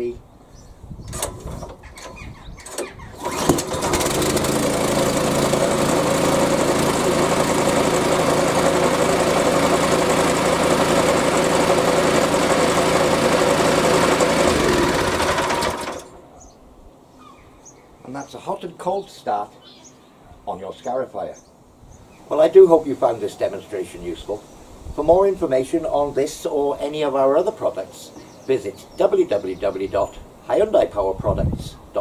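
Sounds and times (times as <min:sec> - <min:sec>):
recoil starter pull: 0:01.1 - 0:16.2
petrol engine running: 0:02.7 - 0:16.2.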